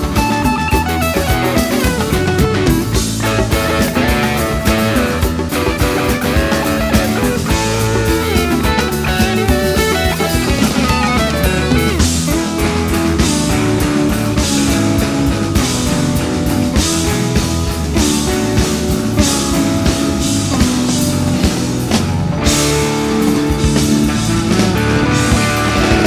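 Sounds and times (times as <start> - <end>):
rock music with guitar and drums: 0.0 - 26.0.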